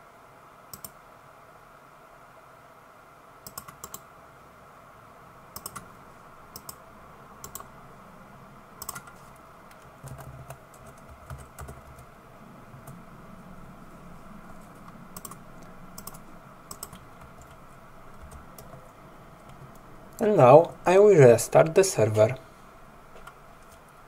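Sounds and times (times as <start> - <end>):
faint background hiss: 0.0 - 24.0
computer mouse clicks: 0.7 - 1.0, 3.4 - 4.1, 5.6 - 5.9, 6.5 - 6.8, 7.4 - 7.7, 8.8 - 12.1, 15.2 - 17.6
keyboard keystrokes: 3.5 - 4.0, 5.6 - 5.9, 7.4 - 7.7, 8.8 - 12.1, 15.2 - 15.4, 16.0 - 17.6.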